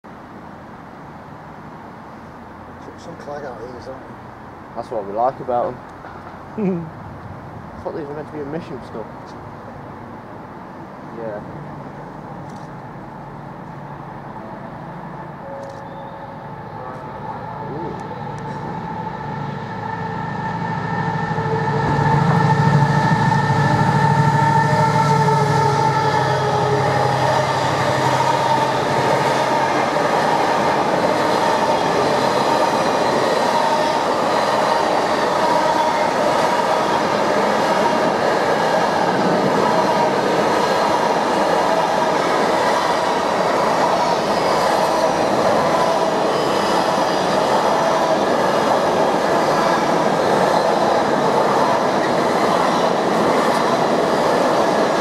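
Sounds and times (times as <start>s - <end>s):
diesel locomotive engine: 1.6s - 55.0s
train wheels on rails: 16.8s - 55.0s.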